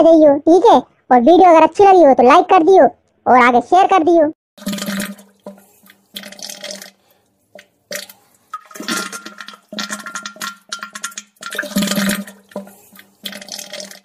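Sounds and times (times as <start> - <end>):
water rushing in bursts: 4.6 - 14.0.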